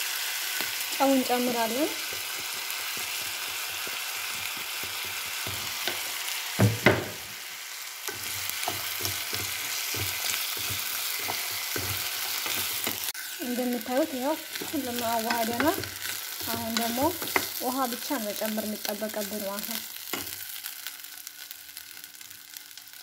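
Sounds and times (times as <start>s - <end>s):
rice sizzling in hot oil: 0.0s - 23.0s
louder knocks: 6.6s - 7.2s
wooden spatula scraping a pot: 8.1s - 18.0s.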